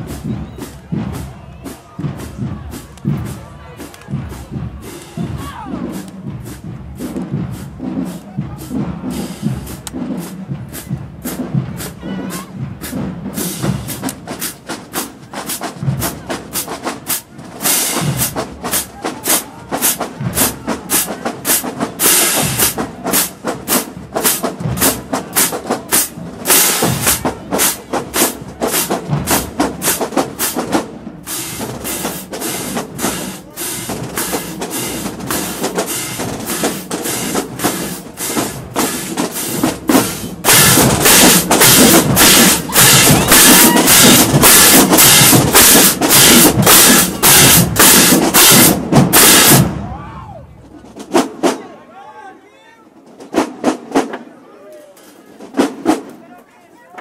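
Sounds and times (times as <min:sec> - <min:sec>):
bass drums: 0:00.0 - 0:50.1
snare drums: 0:00.0 - 0:51.8, 0:52.9 - 0:54.4, 0:55.0 - 0:56.3.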